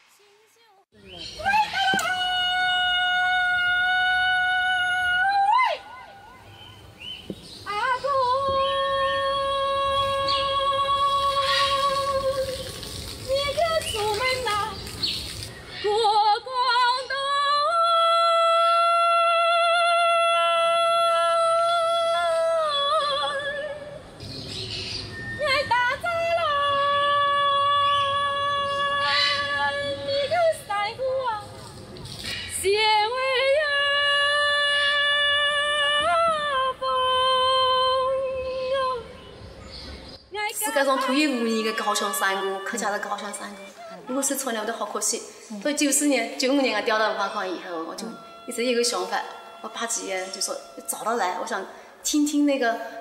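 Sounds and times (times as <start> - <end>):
woman singing unaccompanied: 1.4 - 6.4, 7.4 - 14.9, 15.8 - 24.0, 25.4 - 31.6, 32.6 - 39.3, 40.3 - 52.8
woman singing high notes: 40.4 - 44.6
quick breath: 51.7 - 52.0.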